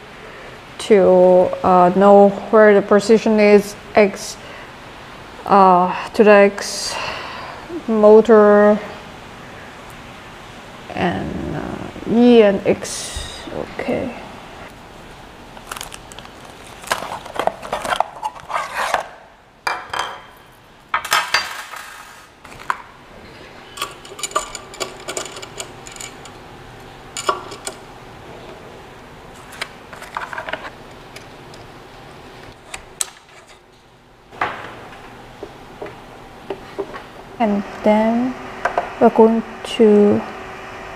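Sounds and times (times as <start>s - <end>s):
packaging rustling: 15.1s - 19.1s
metal parts and tools clinking: 23.8s - 26.4s, 27.1s - 27.8s.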